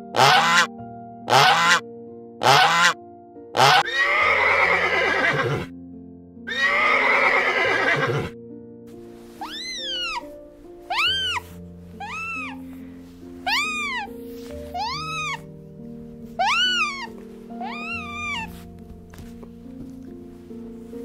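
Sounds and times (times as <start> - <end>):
background music: 0.0 - 21.0
geese honking: 0.1 - 0.7, 1.3 - 1.8, 2.4 - 3.0, 3.6 - 4.0, 10.9 - 12.6, 13.4 - 14.1, 14.8 - 15.4, 16.4 - 18.5
horse neighing: 3.6 - 5.7, 6.5 - 8.3, 9.4 - 10.2, 10.9 - 11.4, 13.5 - 14.1, 16.4 - 18.5.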